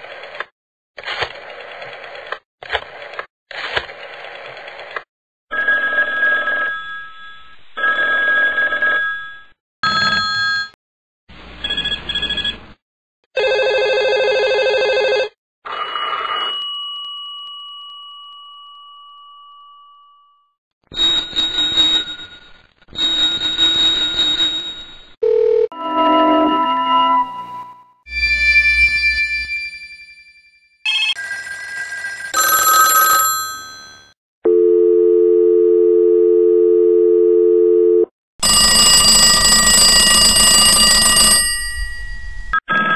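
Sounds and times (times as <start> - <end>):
vintage telephone ringing: 30.9 - 34.2, 38.4 - 42.2.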